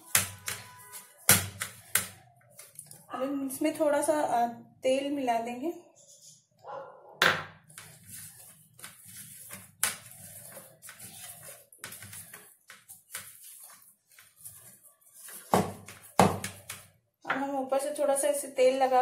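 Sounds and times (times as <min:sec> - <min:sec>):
dough squishing: 0:00.0 - 0:03.1, 0:07.5 - 0:17.1.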